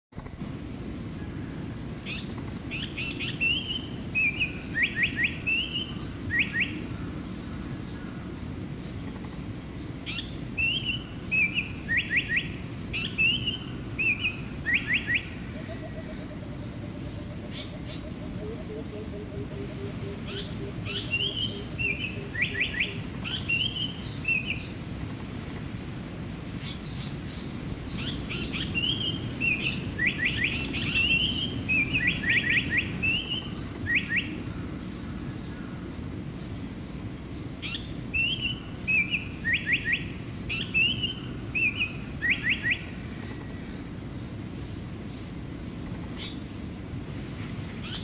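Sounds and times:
bird singing whistles: 0:10.1 - 0:15.3, 0:28.0 - 0:34.3, 0:37.6 - 0:42.9.

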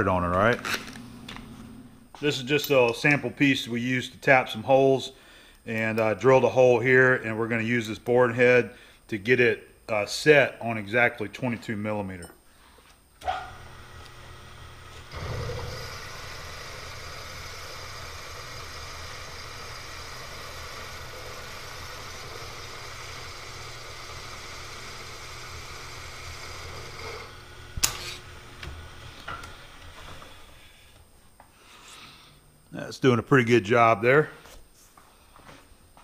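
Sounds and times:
milling machine spindle running: 0:13.5 - 0:30.4.

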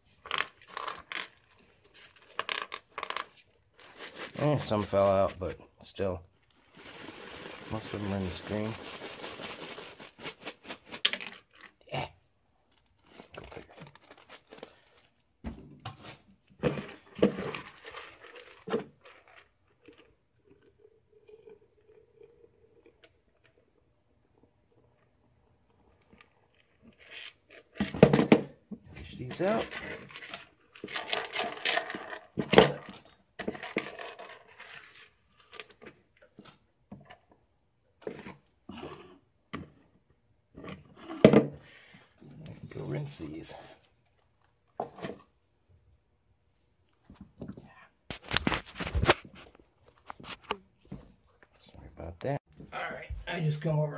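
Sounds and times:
wet screen crinkling: 0:12.6 - 0:15.2
thump of plastic bowl: 0:15.4 - 0:16.0.

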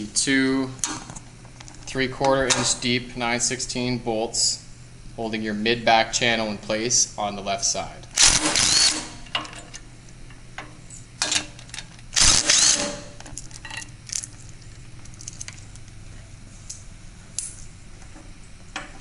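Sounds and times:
cordless power driver bursts: 0:08.2 - 0:09.2, 0:12.2 - 0:13.1.

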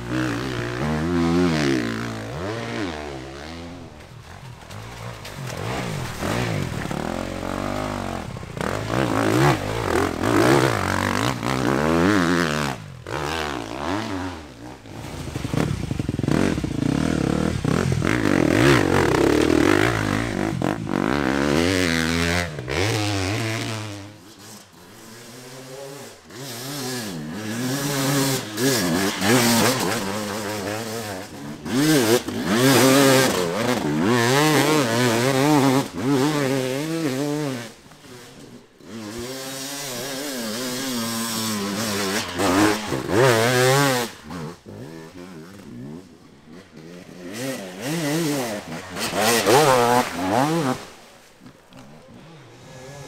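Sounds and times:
dirt bike engines revving: 0:00.0 - 0:53.0.

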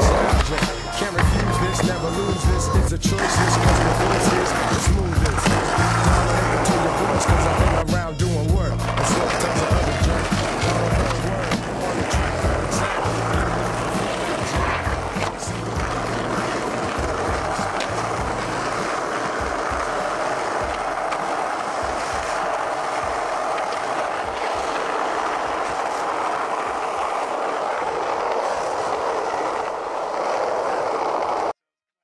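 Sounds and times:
skateboard wheels on asphalt: 0:00.0 - 0:31.6
music bass: 0:01.2 - 0:14.0, 0:14.6 - 0:16.3.

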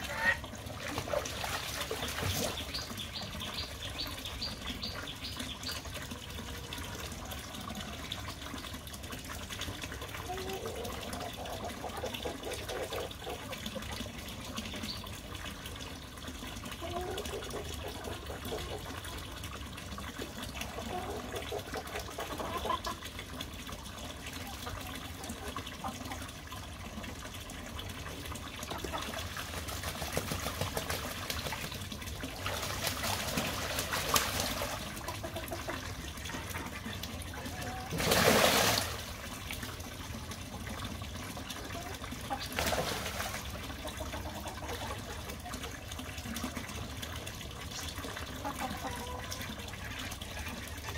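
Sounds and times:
geese splashing: 0:00.0 - 0:03.1, 0:28.7 - 0:39.4
water trickling into tank: 0:00.0 - 0:50.9.

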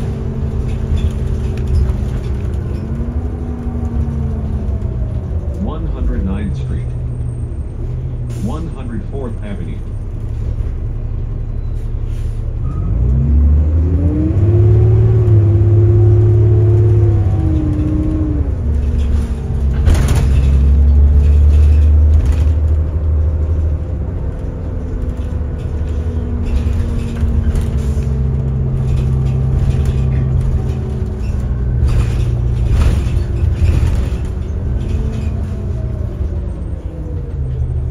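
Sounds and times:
interior rattles and knocks: 0:00.0 - 0:05.5, 0:16.2 - 0:37.9
bus engine from inside cabin: 0:00.0 - 0:37.9.

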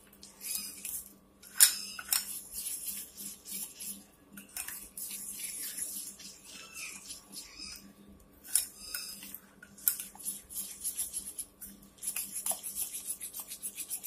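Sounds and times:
spoon scraping a bowl: 0:00.4 - 0:07.8, 0:08.5 - 0:14.0.

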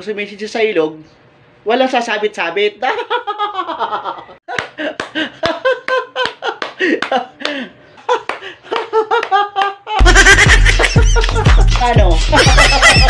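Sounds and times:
man laughing hard: 0:02.9 - 0:13.0
sharp hand claps: 0:04.5 - 0:07.6, 0:08.2 - 0:09.8, 0:10.8 - 0:12.2.

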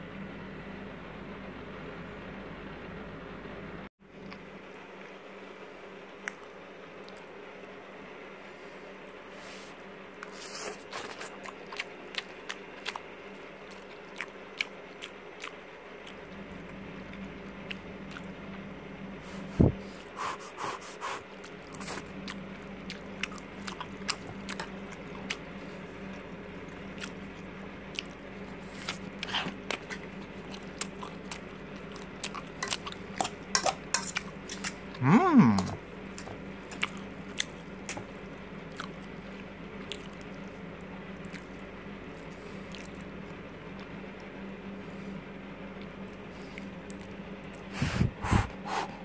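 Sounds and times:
low steady hum: 0:00.0 - 0:49.0
person chewing noodles: 0:10.2 - 0:18.6, 0:19.8 - 0:43.9.

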